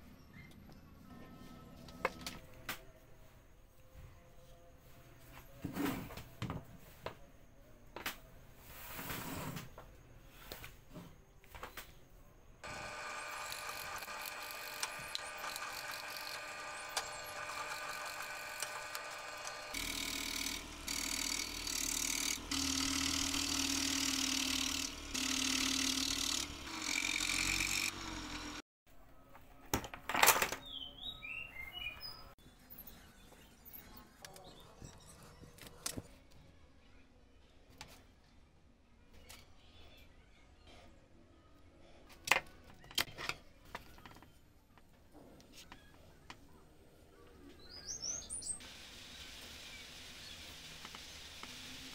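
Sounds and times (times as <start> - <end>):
drill press drilling wood: 12.6 - 28.6.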